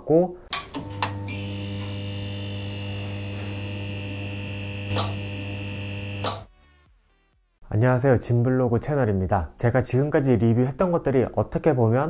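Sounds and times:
mains hum: 0.8 - 6.4
thin high whine: 0.8 - 6.4
sharp electrical crackles: 1.6 - 6.5.

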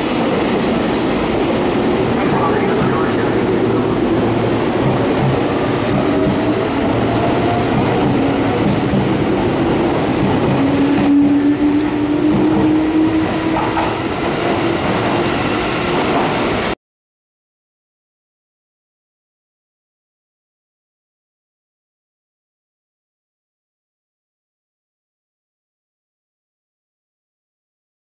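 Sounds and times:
train wheels rumbling and clattering: 0.0 - 16.8.

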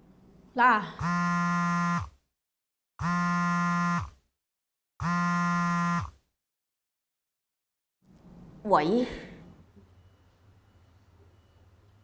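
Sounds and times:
electronic buzzer tone: 1.0 - 2.2, 3.0 - 4.2, 5.0 - 6.2.

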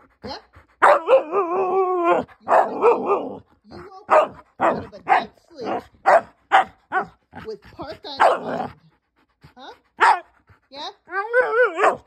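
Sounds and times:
dog barking and yipping: 0.2 - 8.8, 10.0 - 10.4, 11.1 - 12.0
dog howling: 0.8 - 3.5, 11.0 - 12.0.

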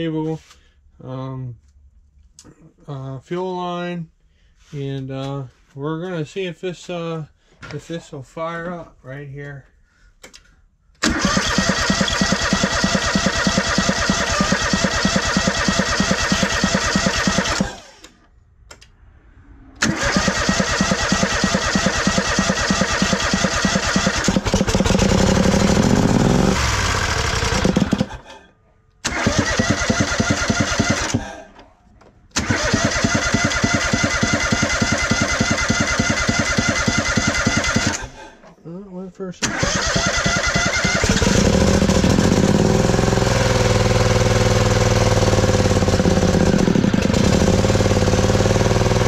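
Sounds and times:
engine catching and revving: 11.0 - 18.1, 19.3 - 28.2, 29.0 - 31.4, 32.4 - 38.1, 39.4 - 49.0
engine cranking by electric starter: 11.0 - 19.0, 19.8 - 31.6, 32.3 - 38.5, 39.4 - 49.0.

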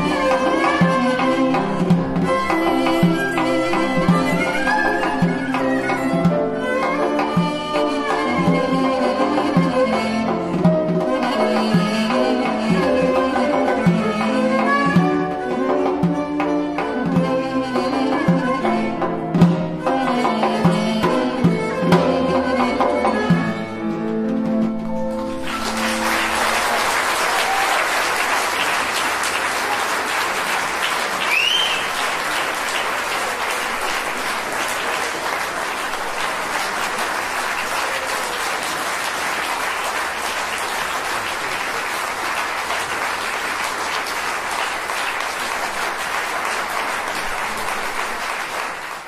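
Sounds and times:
audience applauding: 0.0 - 8.4, 25.1 - 49.0
rising whistle: 31.2 - 32.1.

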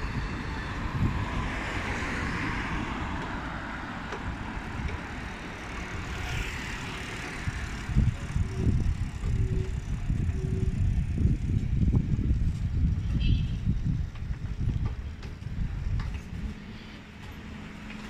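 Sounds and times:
cars passing: 0.0 - 11.5
low traffic rumble: 0.0 - 18.0.

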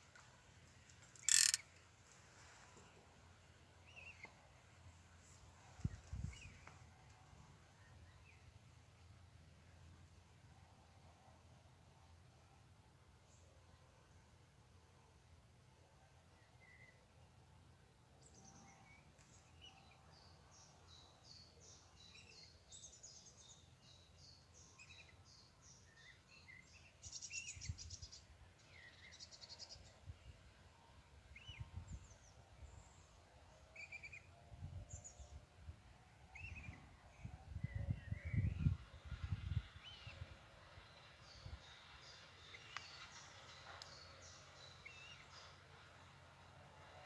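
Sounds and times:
faint background hiss: 0.0 - 47.0
small birds chirping and trilling: 31.3 - 34.3, 36.2 - 45.9.

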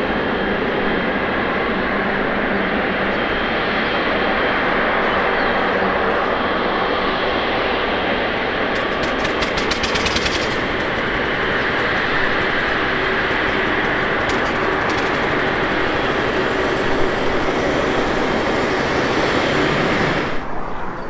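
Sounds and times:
jet engines rushing hiss: 0.0 - 21.0.

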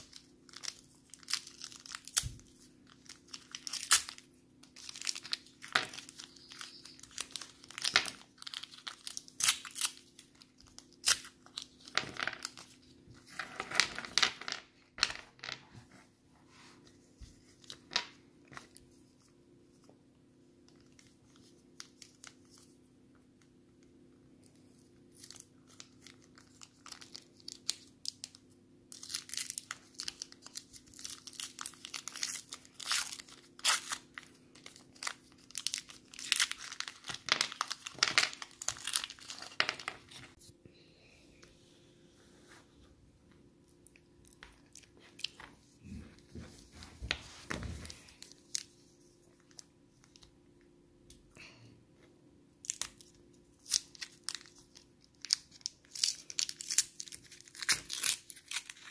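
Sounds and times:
candy wrappers tearing and crinkling: 0.0 - 14.3, 24.9 - 40.4, 52.6 - 58.9.

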